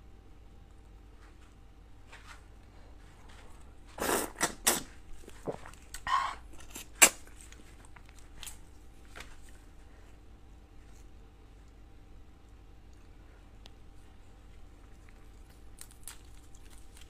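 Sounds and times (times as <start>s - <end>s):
wet sucking: 3.9s - 7.6s
shrimp shells cracking and tearing: 15.2s - 17.0s.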